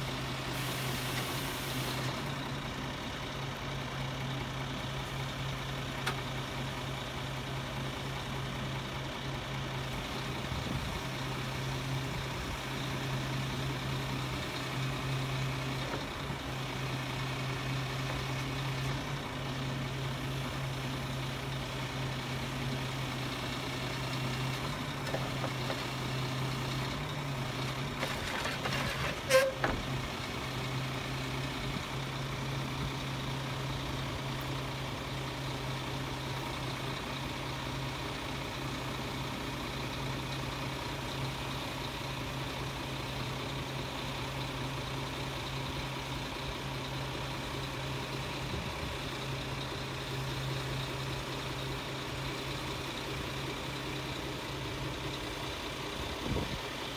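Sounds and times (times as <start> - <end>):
loader crane hydraulics: 0.0 - 3.3, 9.9 - 34.6
truck diesel engine running: 0.0 - 56.9.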